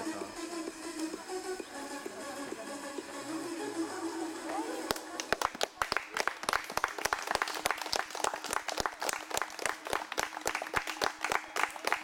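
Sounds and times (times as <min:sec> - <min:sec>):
crowd applauding: 0:04.9 - 0:12.0.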